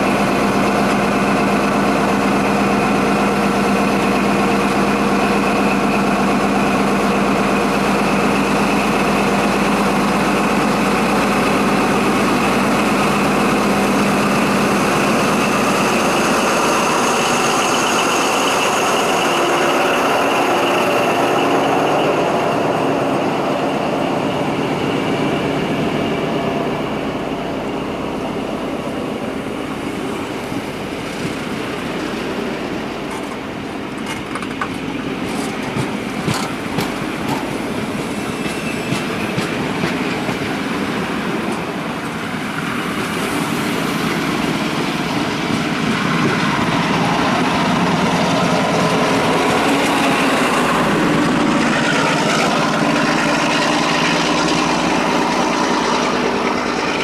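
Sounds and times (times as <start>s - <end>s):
train carriages rolling past: 0.0s - 57.0s
diesel engine hum and whine: 41.8s - 57.0s.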